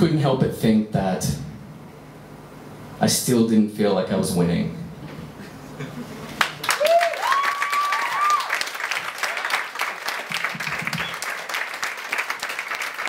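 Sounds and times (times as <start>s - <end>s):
audience applauding: 6.4s - 13.0s
person cheering: 6.6s - 8.7s.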